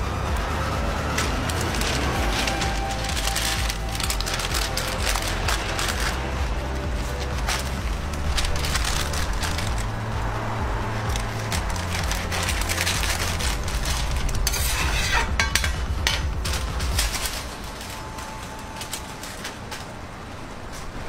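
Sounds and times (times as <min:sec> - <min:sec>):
paper wrapper rustling: 0:00.8 - 0:21.0
metal spatula scraping griddle: 0:12.3 - 0:16.4.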